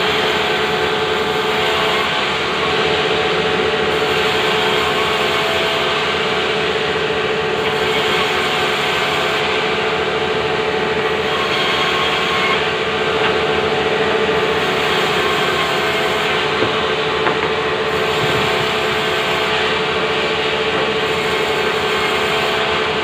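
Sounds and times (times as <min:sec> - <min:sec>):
band saw cutting log: 0:00.0 - 0:23.0
wood knocks: 0:16.6 - 0:17.6.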